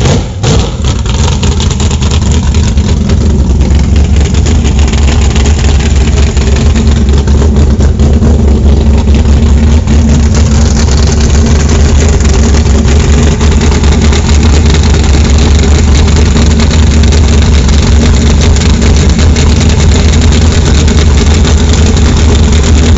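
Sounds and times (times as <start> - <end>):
truck engine idling loudly: 0.0 - 22.9.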